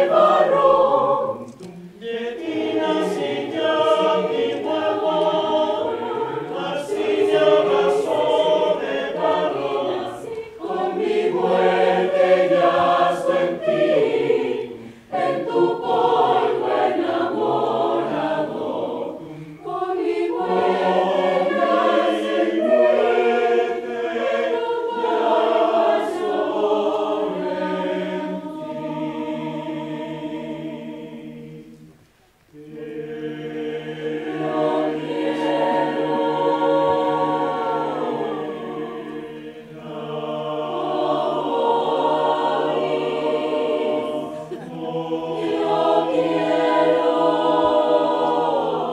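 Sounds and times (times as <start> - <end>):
mixed choir singing: 0.0 - 48.9.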